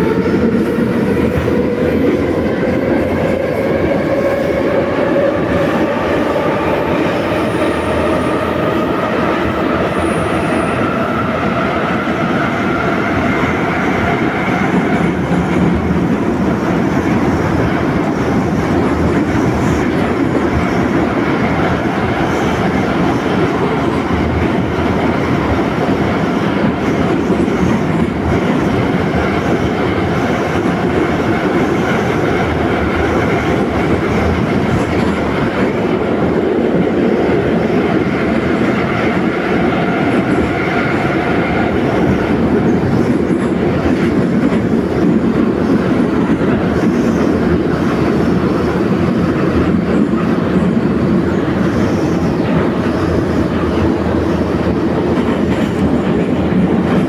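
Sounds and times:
train wheels running on rails: 0.0 - 57.0.

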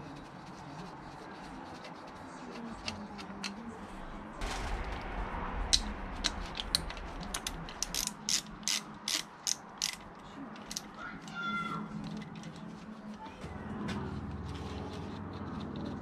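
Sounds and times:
ratchet wrench clicking: 6.6 - 10.9.

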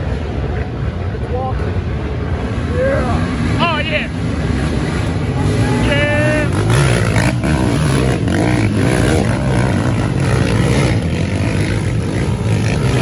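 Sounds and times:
quad engines revving: 2.7 - 13.0.

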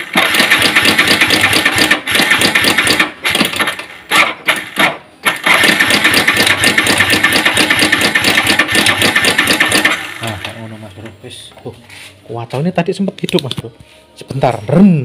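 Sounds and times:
motorcycle engine rattling clatter: 0.0 - 10.7
electric starter cranking: 0.0 - 10.8.

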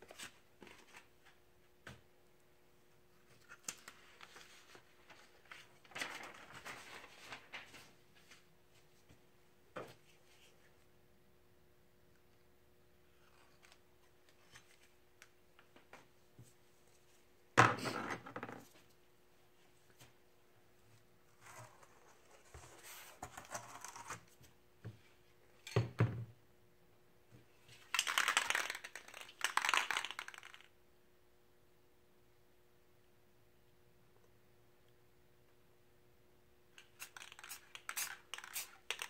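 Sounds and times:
paper rustling and crinkling: 3.3 - 8.5.

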